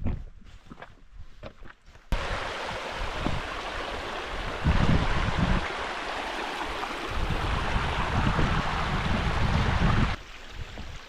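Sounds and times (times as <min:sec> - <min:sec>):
stream running over rocks: 0:02.1 - 0:11.0
wind buffeting microphone: 0:02.2 - 0:05.9, 0:06.7 - 0:11.0.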